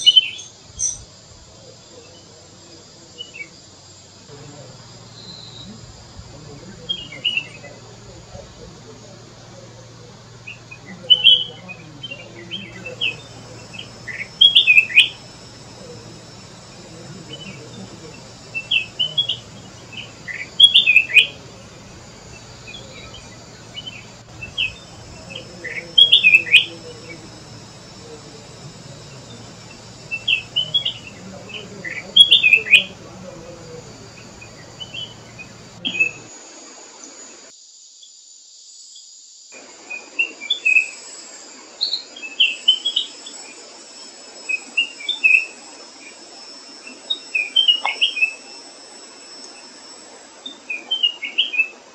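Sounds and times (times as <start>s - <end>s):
bird calling sharp notes: 6.7s - 36.2s.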